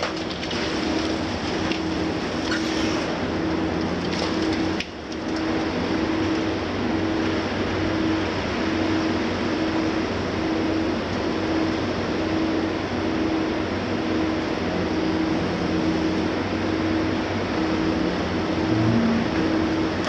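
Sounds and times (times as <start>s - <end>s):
diesel engine under load: 0.0s - 20.0s
low pulsing tone: 18.0s - 20.0s.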